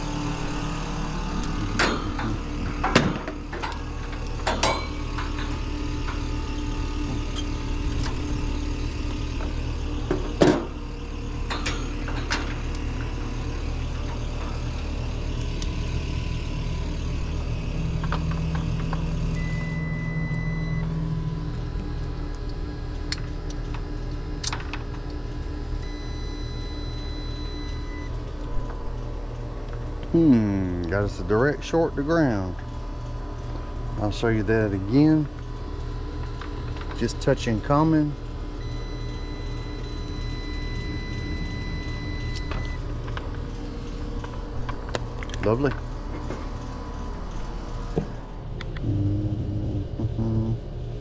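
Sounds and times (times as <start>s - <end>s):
machinery humming: 0.0s - 51.0s
high steady tone: 38.6s - 42.9s, 48.8s - 50.7s.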